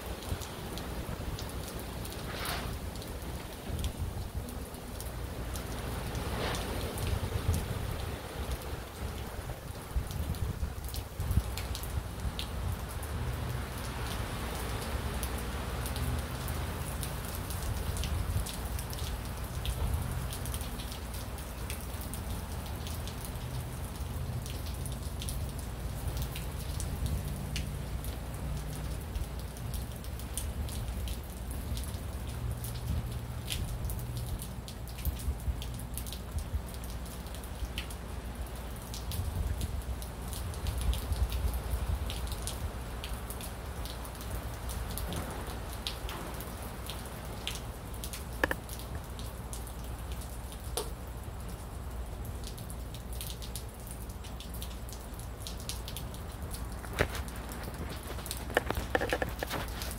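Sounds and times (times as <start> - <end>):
low storm rumble: 0.0 - 22.4
rain drops ticking: 0.0 - 59.9.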